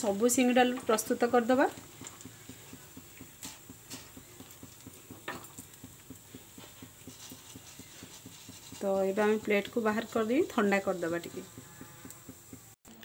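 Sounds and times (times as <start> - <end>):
hot oil crackling and popping: 0.0 - 13.0.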